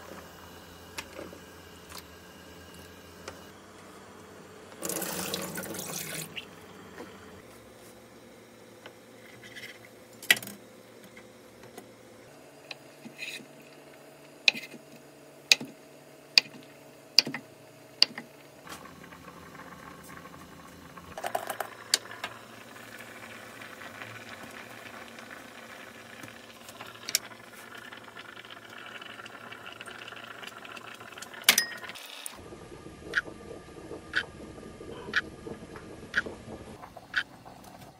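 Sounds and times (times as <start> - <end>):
steady low hum: 32.4 - 37.9.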